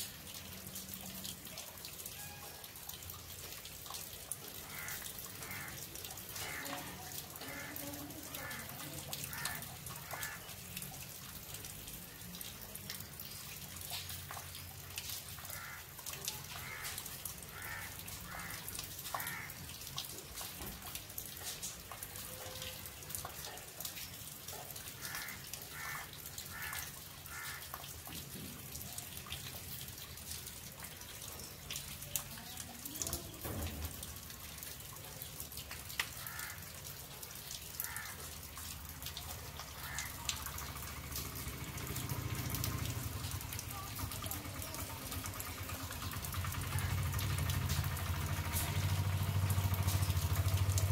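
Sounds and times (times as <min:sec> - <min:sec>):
rainwater running and splashing: 0:00.0 - 0:50.9
water drips: 0:00.0 - 0:50.9.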